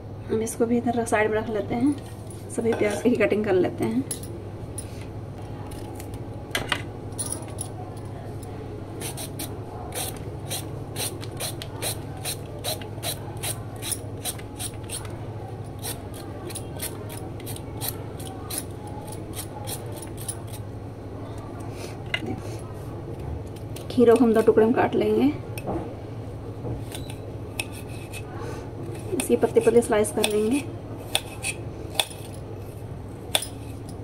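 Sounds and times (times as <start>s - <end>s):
knife scraping cucumber on board: 15.8s - 20.6s, 27.0s - 29.2s, 31.0s - 31.6s.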